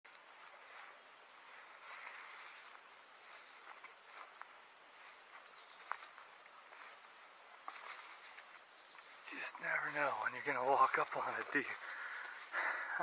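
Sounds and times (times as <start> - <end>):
insects singing: 0.1 - 13.0
footsteps swishing through grass: 0.3 - 8.6.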